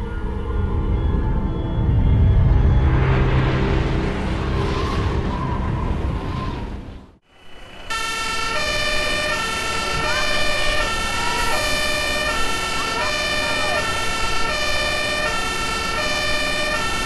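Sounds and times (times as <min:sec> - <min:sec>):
music: 0:00.0 - 0:07.1
two-tone emergency sirens: 0:04.9 - 0:17.0.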